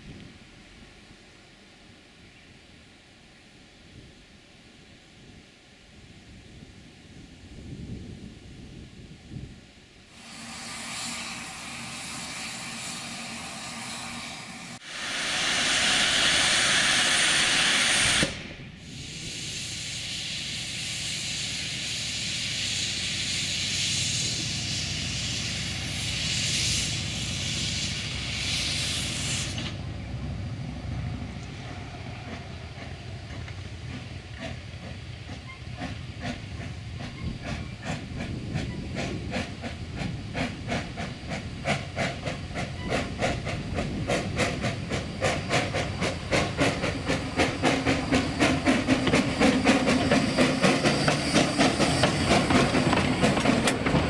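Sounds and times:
loud blast of steam: 0:10.1 - 0:30.0
steam locomotive hissing: 0:10.1 - 0:54.0
locomotive exhaust chuffs: 0:10.2 - 0:54.0.

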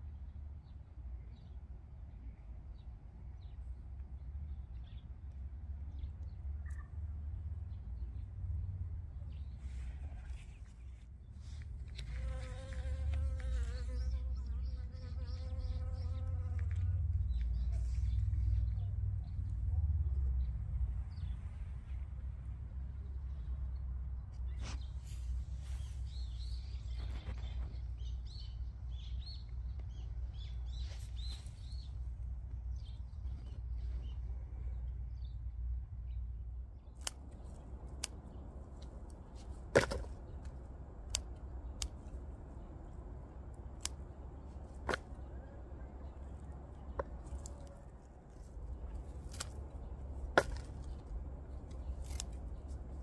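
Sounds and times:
small birds chirping: 0:05.9 - 0:07.0, 0:09.2 - 0:21.5, 0:24.2 - 0:32.0
low steady rumble: 0:14.0 - 0:53.0
sharp snips of flower stalks: 0:37.0 - 0:38.4, 0:39.1 - 0:42.2, 0:43.7 - 0:44.1, 0:49.0 - 0:51.0, 0:51.6 - 0:52.7.

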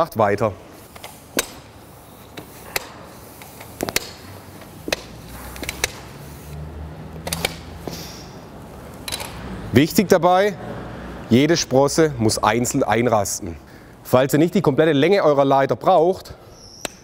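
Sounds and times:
ladder rungs clicking into place: 0:02.3 - 0:06.1.

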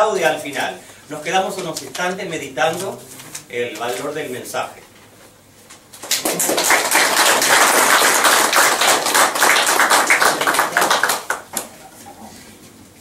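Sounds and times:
audience applauding: 0:06.0 - 0:11.6.

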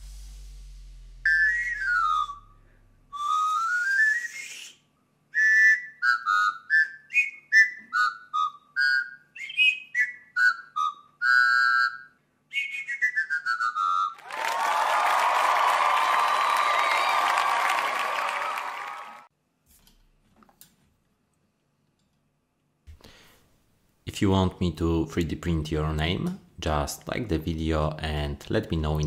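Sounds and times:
pan flute playing: 0:01.3 - 0:04.7, 0:05.4 - 0:14.2
crowd applause and cheering: 0:14.2 - 0:19.3.

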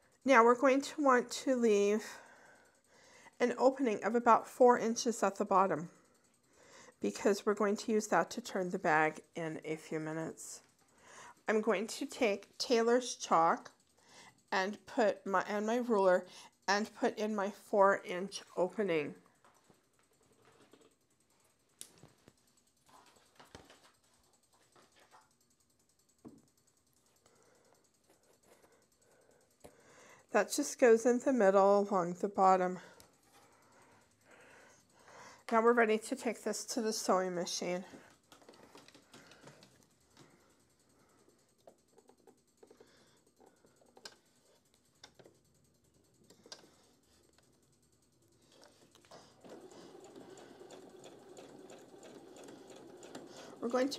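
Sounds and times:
faint clicks and taps: 0:19.2 - 0:25.4, 0:26.1 - 0:29.9, 0:37.9 - 0:40.6, 0:41.2 - 0:45.5, 0:46.2 - 0:47.6.

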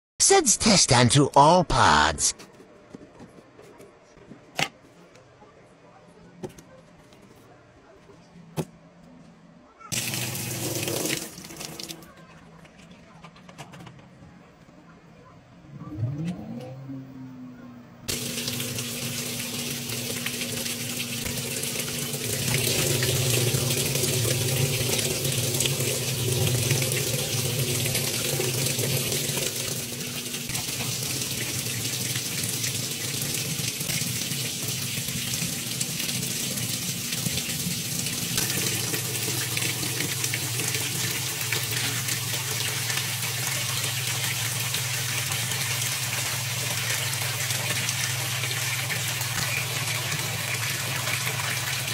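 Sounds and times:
water pouring into washing machine: 0:09.9 - 0:12.2, 0:18.1 - 0:51.9
low hum: 0:15.2 - 0:18.1.

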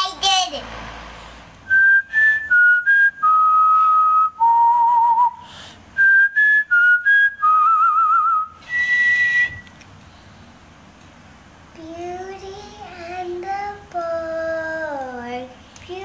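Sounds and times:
person whistling a tune: 0:01.7 - 0:05.4, 0:06.0 - 0:09.8.

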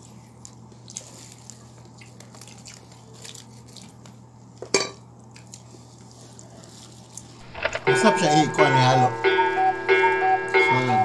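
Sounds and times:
soft chewing: 0:00.0 - 0:04.6, 0:05.2 - 0:07.4
steady low hum: 0:07.4 - 0:11.0.

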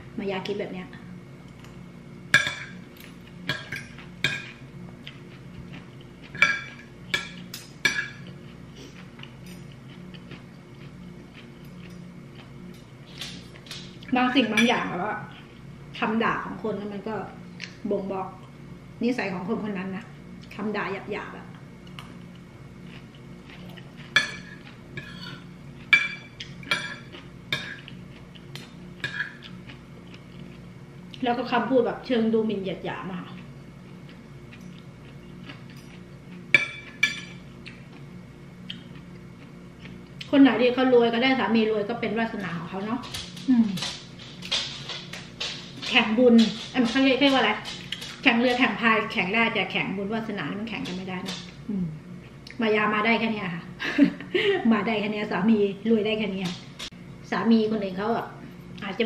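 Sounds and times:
cutlery clinking on a plate: 0:06.3 - 0:08.3, 0:24.1 - 0:27.9
cutlery clinking on ceramic plate: 0:06.4 - 0:08.3.

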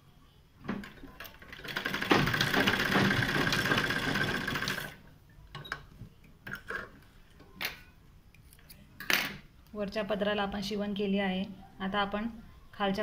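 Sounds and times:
sewing machine running fast: 0:01.5 - 0:05.0.

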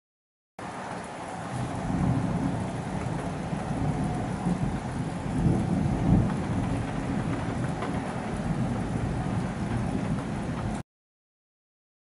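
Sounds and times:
steady rain: 0:00.6 - 0:10.8
thunder rumbling: 0:01.0 - 0:10.8.

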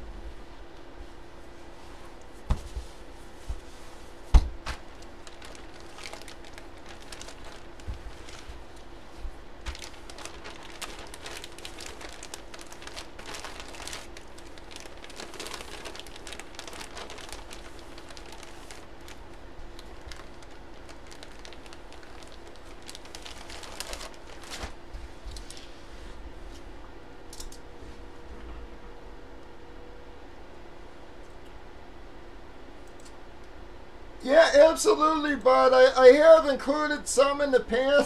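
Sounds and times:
plastic bag crinkling: 0:04.7 - 0:09.0, 0:09.6 - 0:25.7.

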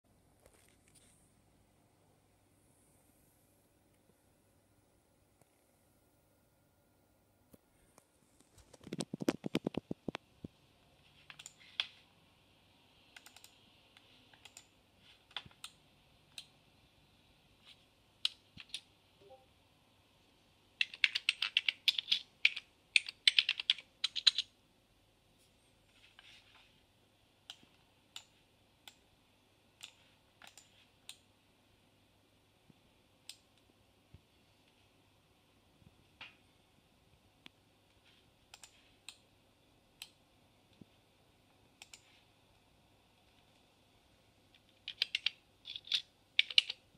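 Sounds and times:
typing on computer keyboard: 0:11.3 - 0:12.0, 0:13.2 - 0:13.6, 0:14.3 - 0:16.5, 0:18.2 - 0:18.9, 0:20.8 - 0:24.5, 0:44.6 - 0:46.8.

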